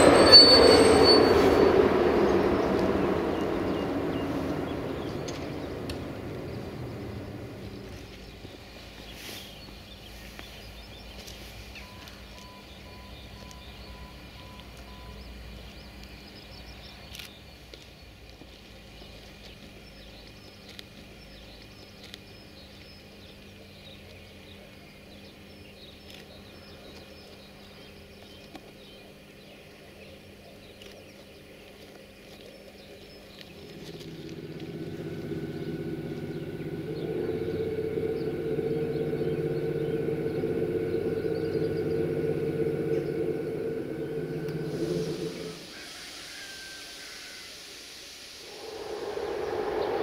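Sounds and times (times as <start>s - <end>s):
electric locomotive humming: 0.0s - 17.3s, 33.0s - 50.0s
birds chirping: 0.0s - 47.4s, 48.4s - 50.0s.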